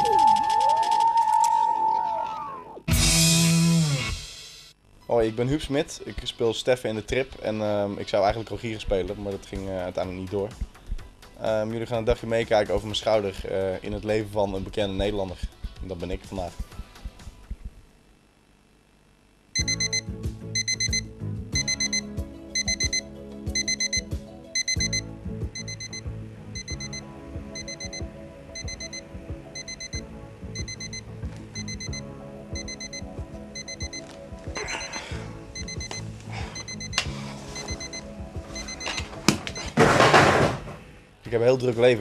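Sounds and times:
background music: 0:02.4 - 0:17.5, 0:19.6 - 0:39.8
alarm clock beeping: 0:19.6 - 0:20.0, 0:20.6 - 0:21.0, 0:21.6 - 0:22.0, 0:22.6 - 0:23.0, 0:23.6 - 0:25.0, 0:25.6 - 0:26.0, 0:26.6 - 0:27.0, 0:27.6 - 0:29.0, 0:29.6 - 0:30.0, 0:30.6 - 0:31.0, 0:31.6 - 0:34.1, 0:34.8 - 0:35.0, 0:35.6 - 0:39.8.

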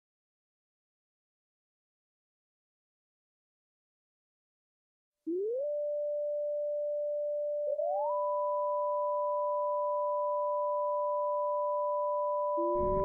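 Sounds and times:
electronic tone sliding up: 0:12.6 - 0:13.0
higher electronic tone sliding up: 0:12.6 - 0:13.0.

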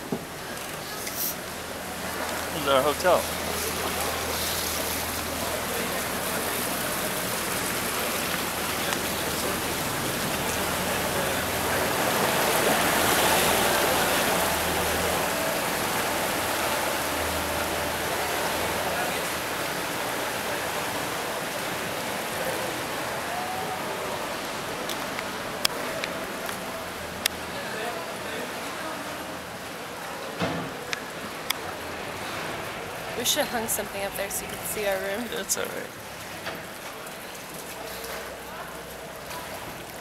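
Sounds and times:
motorboat engine running: 0:00.0 - 0:27.5
boat wake rushing and splashing: 0:00.0 - 0:40.0.

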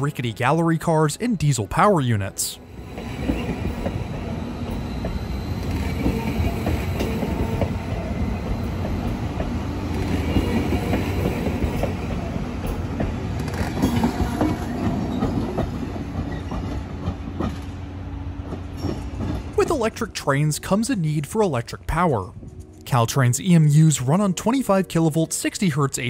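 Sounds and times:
train rolling by rumble: 0:02.6 - 0:23.2.

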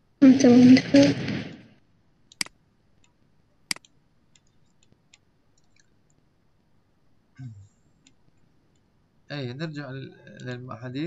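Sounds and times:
computer mouse clicks: 0:02.3 - 0:06.2.

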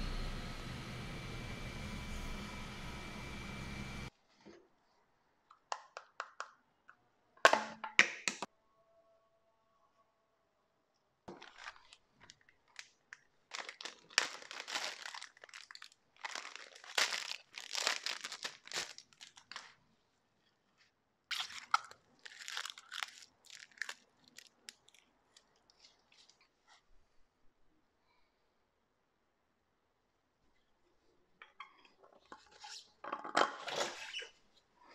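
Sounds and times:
plastic bag crinkling: 0:11.3 - 0:19.8, 0:21.3 - 0:26.4.

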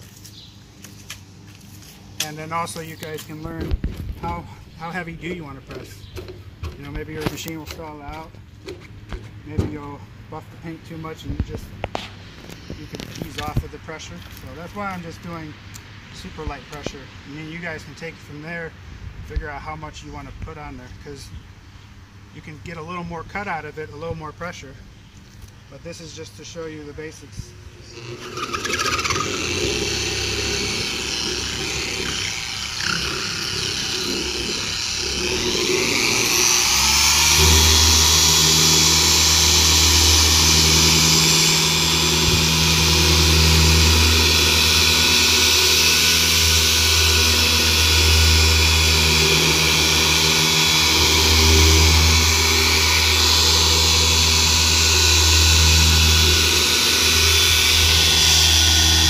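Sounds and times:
electric polisher whining: 0:27.8 - 0:59.0.

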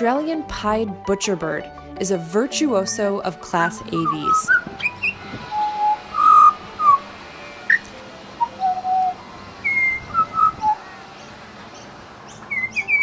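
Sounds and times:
bird singing whistled notes: 0:03.8 - 0:13.0.

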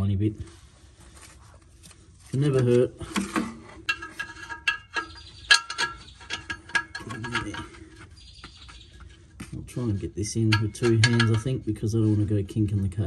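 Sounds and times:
small metallic clicks and squeaks: 0:03.8 - 0:09.3.

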